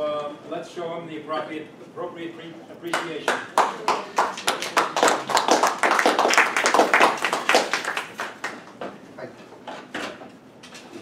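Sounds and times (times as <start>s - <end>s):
audience applauding: 3.0s - 8.8s.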